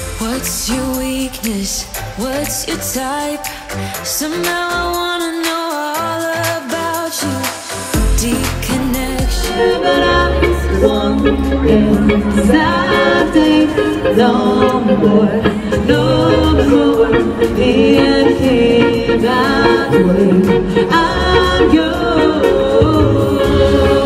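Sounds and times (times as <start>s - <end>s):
bass: 0.0s - 5.2s, 6.0s - 24.0s
drums: 0.0s - 24.0s
women singing: 0.0s - 24.0s
electric guitar: 7.7s - 24.0s.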